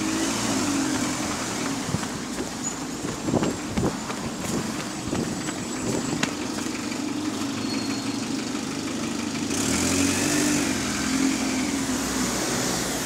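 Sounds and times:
bus diesel engine knocking: 0.0s - 9.6s.

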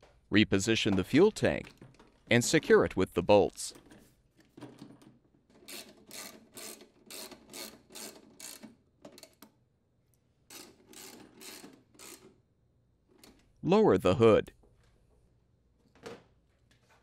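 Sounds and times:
ratchet wrench ratcheting: 5.7s - 8.7s, 10.5s - 12.3s.

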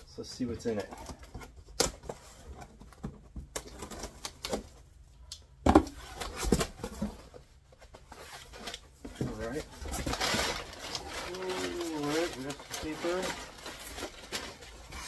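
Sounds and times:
cardboard scraping and rustling: 5.8s - 15.0s.

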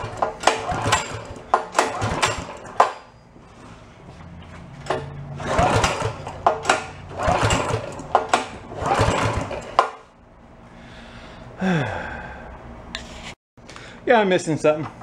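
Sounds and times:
pull starter whirring: 0.0s - 3.7s, 4.8s - 10.1s.

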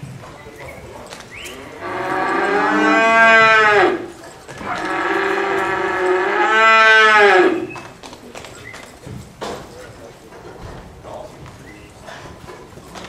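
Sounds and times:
cow mooing: 1.6s - 7.7s.

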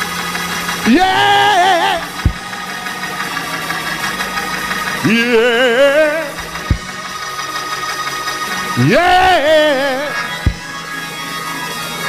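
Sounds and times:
held organ chord: 0.0s - 12.0s
preacher singing with vibrato: 0.8s - 7.3s, 8.4s - 10.9s
short low thump: 2.2s - 2.5s, 6.4s - 6.9s, 10.4s - 10.7s.

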